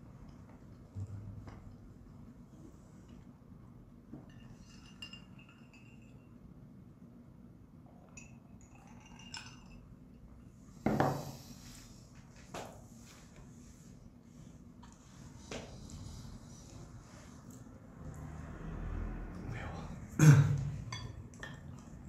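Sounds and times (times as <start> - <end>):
tableware clinking: 4.2 - 6.4, 8.0 - 11.3, 20.8 - 22.0
cup knocking on table: 10.8 - 11.3.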